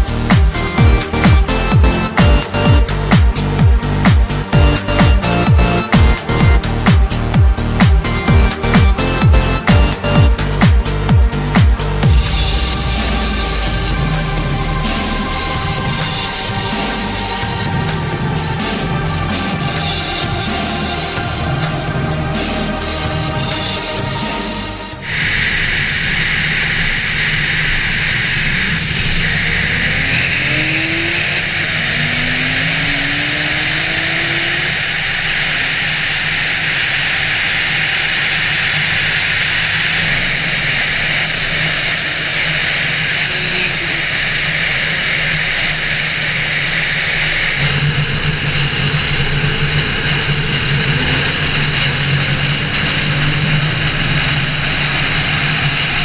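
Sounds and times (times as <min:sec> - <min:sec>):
car engine drone: 0:00.0 - 0:56.0
wind and road noise: 0:25.0 - 0:56.0.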